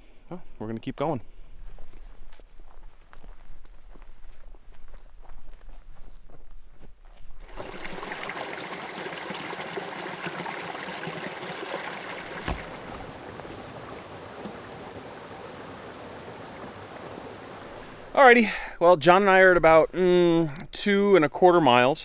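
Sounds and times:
footsteps on a trail: 1.4s - 7.6s, 12.3s - 14.8s
stream water flowing: 7.4s - 18.3s
thump: 12.4s - 13.1s.

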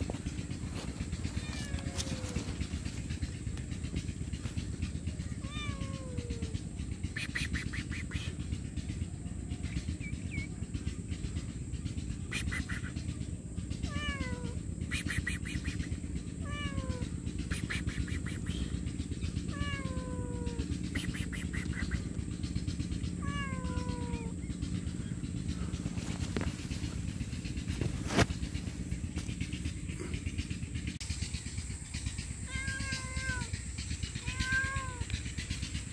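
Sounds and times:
cat meowing: 1.0s - 2.7s, 5.4s - 6.5s, 13.8s - 14.6s, 16.4s - 17.1s, 19.5s - 20.7s, 23.2s - 24.4s, 32.5s - 33.5s, 34.2s - 35.2s.

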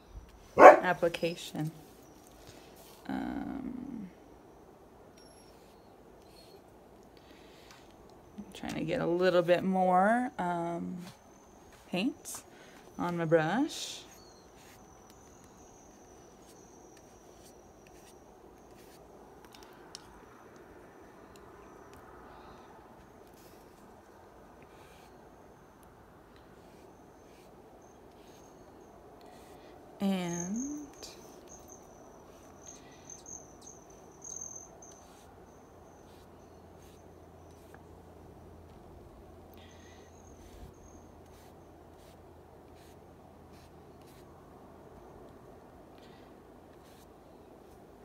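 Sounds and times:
faint high steady tone: 8.2s - 38.6s
brush on paper: 13.7s - 15.2s, 16.4s - 19.6s, 26.5s - 27.6s, 36.0s - 37.8s, 40.4s - 44.3s, 46.7s - 47.8s
high insect trill: 30.2s - 37.4s, 39.6s - 42.1s.

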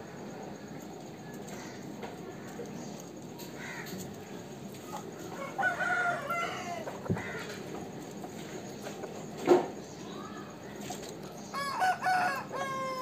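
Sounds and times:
rooster crowing: 5.2s - 7.6s, 11.5s - 13.0s
faint rooster call: 5.3s - 7.5s, 11.5s - 13.0s.

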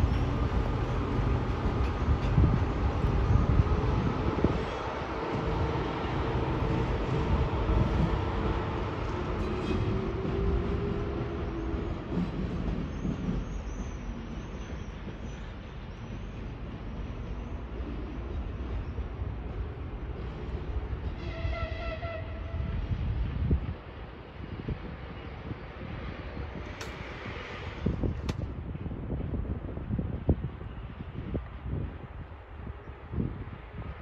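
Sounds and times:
locomotive wheels rumbling: 0.0s - 24.9s
high-pitched locomotive whistle: 21.2s - 22.9s.

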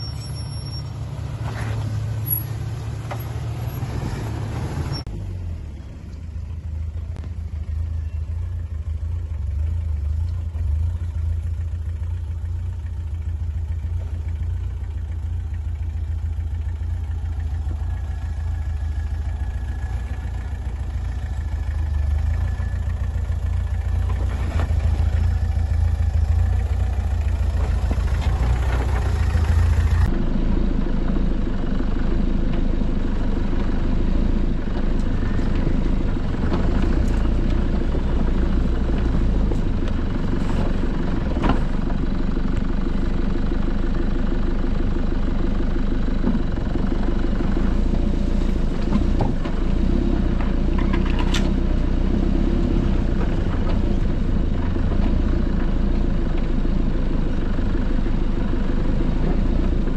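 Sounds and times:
engine heard from inside cab: 0.0s - 59.9s
engine rumbling at low revs: 0.0s - 59.9s.

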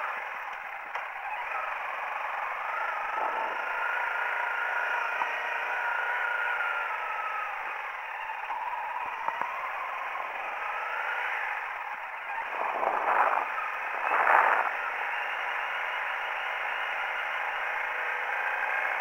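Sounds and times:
motorcycle engine running: 0.0s - 19.0s
wind noise: 12.3s - 14.9s
rushes of noise: 12.3s - 15.0s.

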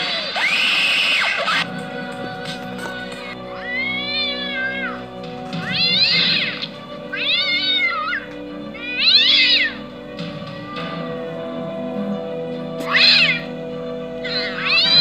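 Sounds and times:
background music of held chords: 1.6s - 15.0s
cat meowing: 3.5s - 5.0s, 5.6s - 8.2s, 8.8s - 9.8s, 12.8s - 13.5s, 14.2s - 15.0s.

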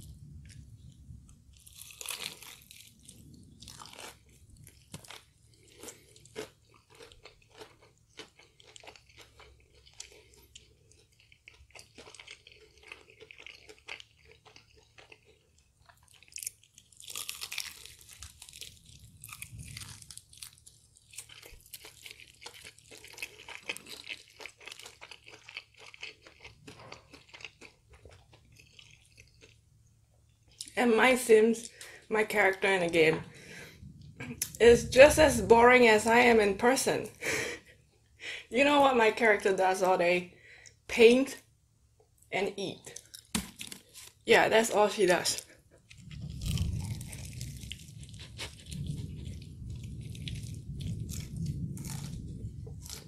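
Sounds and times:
crunching and chewing fried chicken: 0.0s - 31.0s, 42.1s - 44.3s, 45.2s - 53.0s.

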